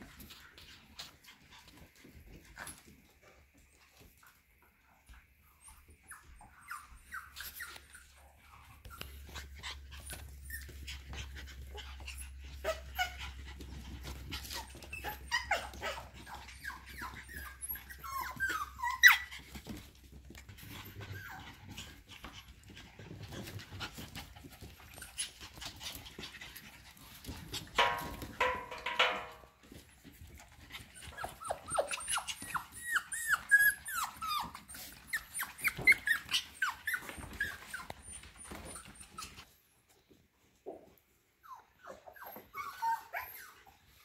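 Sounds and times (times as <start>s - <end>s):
puppy whimpering and yipping: 5.6s - 26.3s, 27.2s - 29.5s, 30.5s - 39.5s, 41.4s - 44.0s.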